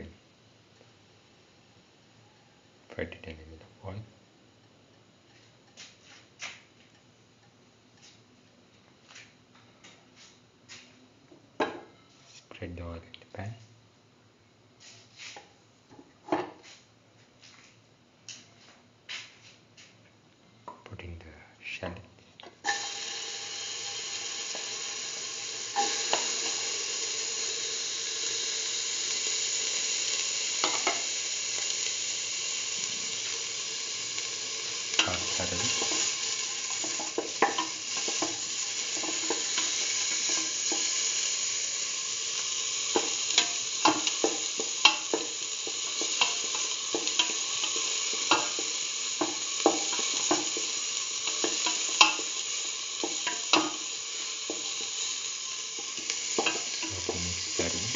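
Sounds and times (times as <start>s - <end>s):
shallots sizzling in hot oil: 22.6s - 57.9s.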